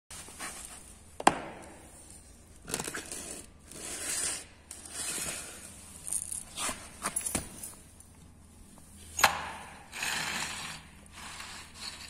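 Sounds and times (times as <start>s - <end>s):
handling rustling and scraping: 0.1s - 1.2s, 2.0s - 9.2s.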